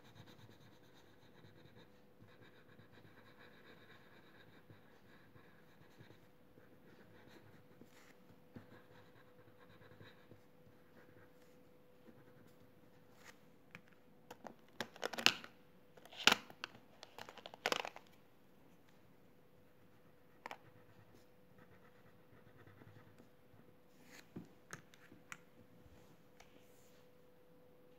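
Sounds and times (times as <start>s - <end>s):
crayon scratching on paper: 0.0s - 12.6s, 20.3s - 23.3s
faint steady hum: 0.0s - 27.9s
crayons and paper handled: 16.0s - 18.2s.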